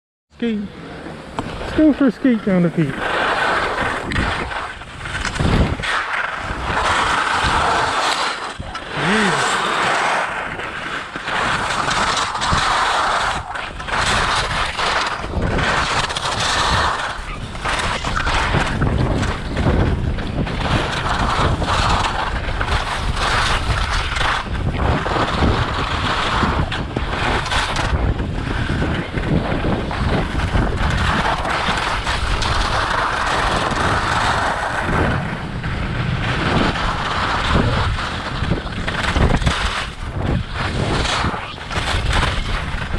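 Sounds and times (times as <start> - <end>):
skis scraping on icy snow: 0.4 - 42.9
wind buffeting microphone: 0.4 - 42.9.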